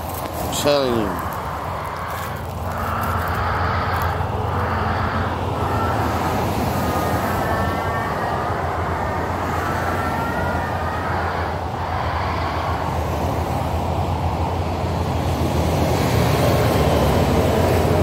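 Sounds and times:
wavering whining tone: 0.2 - 12.8.

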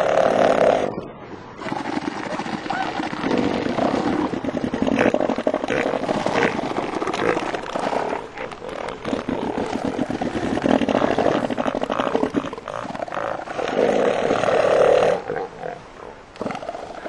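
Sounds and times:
elephant seals roaring: 0.0 - 17.0.

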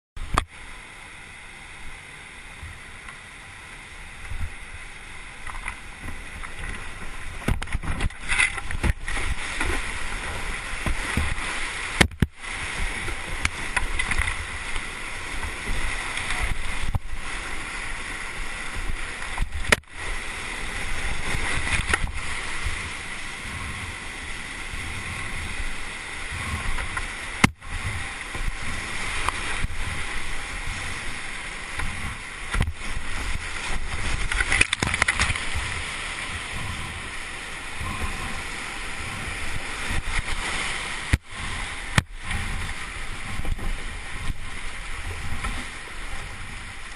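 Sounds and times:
boat and paddle splashes: 0.2 - 46.9
whitewater rushing: 0.2 - 46.9.

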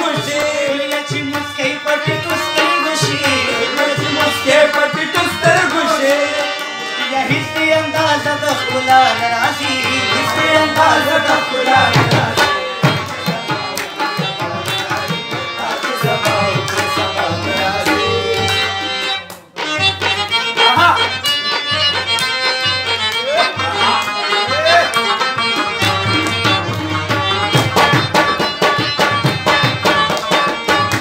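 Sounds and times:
man singing: 0.0 - 18.9
folk music ensemble: 0.0 - 31.0.

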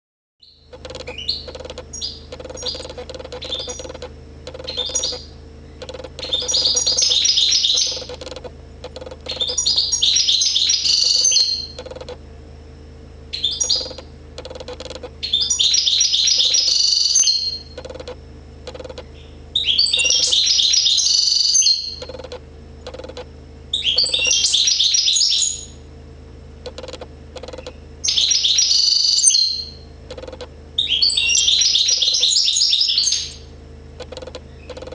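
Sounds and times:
goldfinch twittering song: 0.4 - 8.4, 9.0 - 12.2, 13.4 - 18.1, 18.7 - 22.3, 23.8 - 25.6
single bird chirps: 0.4 - 12.2, 13.3 - 23.2, 23.8 - 25.8
steady low hum: 0.4 - 34.9.

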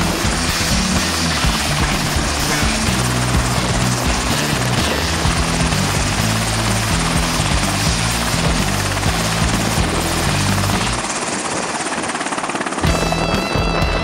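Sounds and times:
background music with bass line: 0.0 - 11.0
helicopter rotor rush: 0.0 - 14.0.

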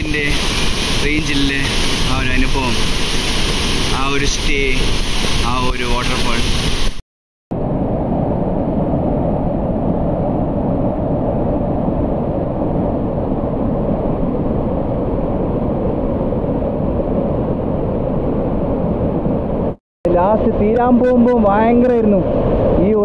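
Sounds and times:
waterfall rushing: 0.0 - 7.0.

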